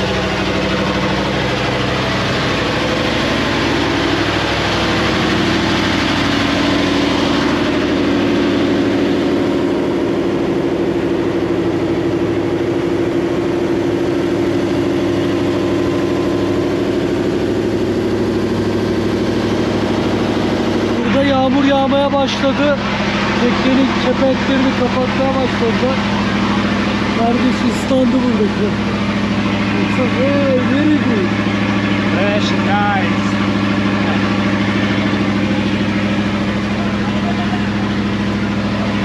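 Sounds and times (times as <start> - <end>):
boat engine droning: 0.0 - 39.0.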